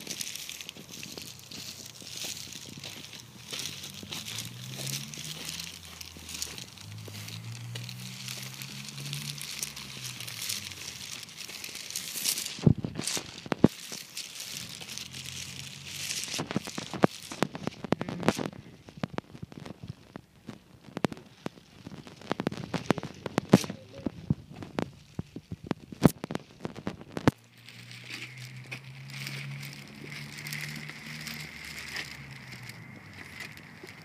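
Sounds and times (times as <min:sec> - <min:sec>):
phone handling crackle: 0:09.4 - 0:15.2, 0:16.0 - 0:29.4.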